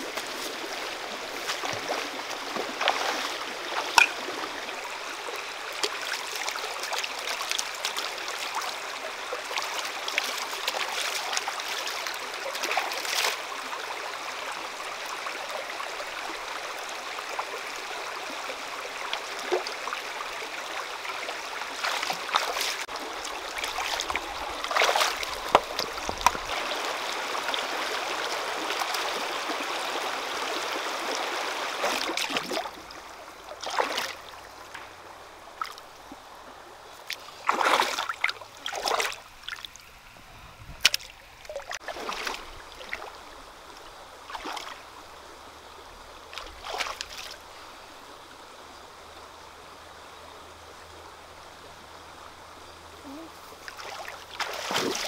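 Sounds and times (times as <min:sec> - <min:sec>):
stream trickling over stones: 0:00.0 - 0:55.0
short sharp splashes: 0:33.6 - 0:34.2, 0:37.1 - 0:39.7, 0:46.3 - 0:47.4, 0:53.8 - 0:55.0.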